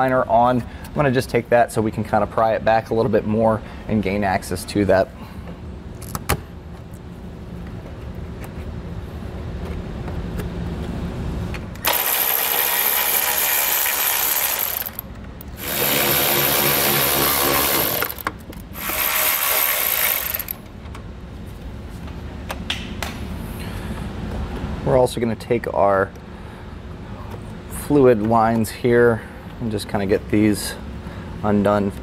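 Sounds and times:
power ratchet running: 0:11.8 - 0:20.6.

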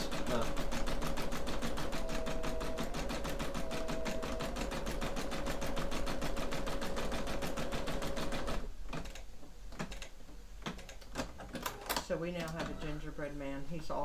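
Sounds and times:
embroidery machine stitching: 0:00.0 - 0:09.1.

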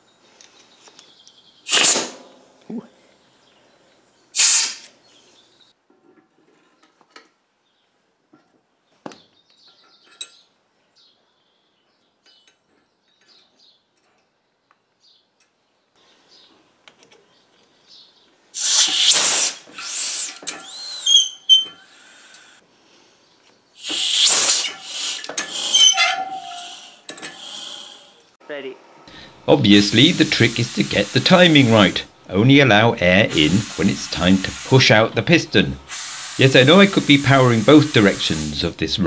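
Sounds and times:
compressed air hissing bursts: 0:01.7 - 0:02.2, 0:04.4 - 0:05.0, 0:18.6 - 0:21.2, 0:21.8 - 0:22.6, 0:23.8 - 0:28.2, 0:29.1 - 0:39.0
short air puffs: 0:01.7 - 0:02.3, 0:04.4 - 0:05.3, 0:18.6 - 0:22.6, 0:23.8 - 0:28.2, 0:29.1 - 0:39.0
short rising whistle: 0:18.6 - 0:21.8.

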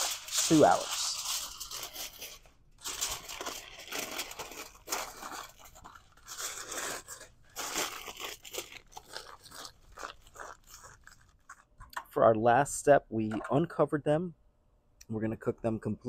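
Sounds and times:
aluminium foil crumpling: 0:00.0 - 0:11.7.

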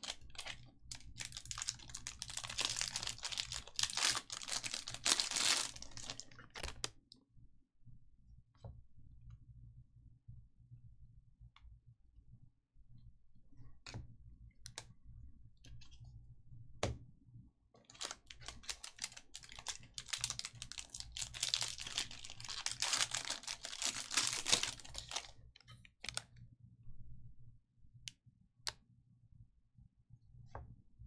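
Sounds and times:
foil wrappers crinkling and tearing: 0:00.0 - 0:06.9, 0:17.9 - 0:25.3.

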